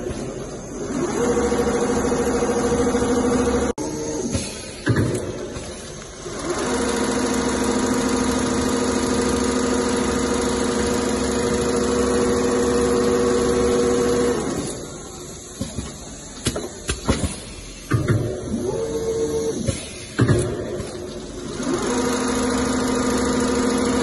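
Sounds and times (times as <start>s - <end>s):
sewing machine humming: 0.3s - 4.3s, 5.4s - 15.5s, 21.0s - 24.0s.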